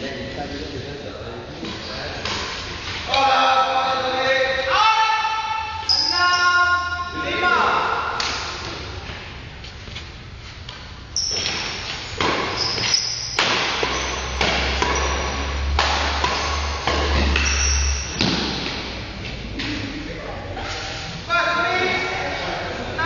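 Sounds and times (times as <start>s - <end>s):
badminton rackets hitting shuttlecock: 8.0s - 9.3s, 10.6s - 19.8s
shoes squeaking on court: 9.6s - 18.6s.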